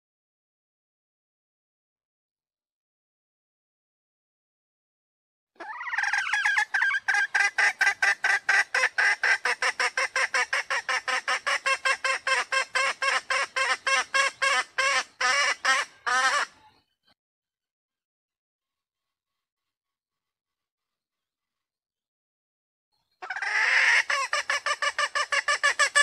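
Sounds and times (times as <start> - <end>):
junglefowl clucking call: 5.6 - 16.7, 23.2 - 26.0.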